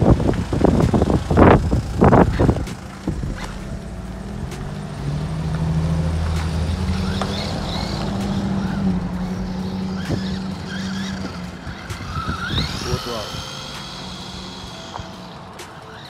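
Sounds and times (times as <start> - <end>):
passing car hum: 0.0 - 16.0
rc truck electric motor whining: 0.0 - 16.0.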